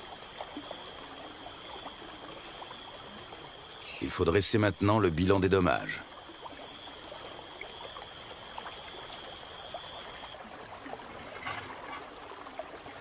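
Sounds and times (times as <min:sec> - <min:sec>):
high insect whine: 0:00.0 - 0:10.4.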